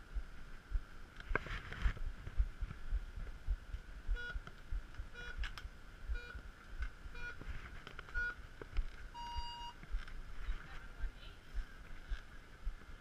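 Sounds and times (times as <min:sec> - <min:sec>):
countdown clock short beeps: 0:06.2 - 0:06.4, 0:09.2 - 0:09.8.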